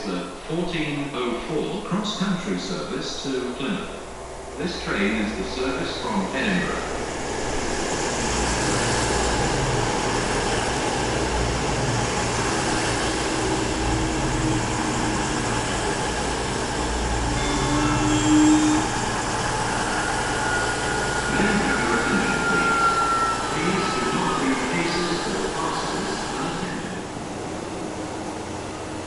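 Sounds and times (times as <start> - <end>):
diesel train engines running: 0.0 - 29.0
train wheels rumbling on track: 3.6 - 29.0
thin falling whine: 16.9 - 25.7.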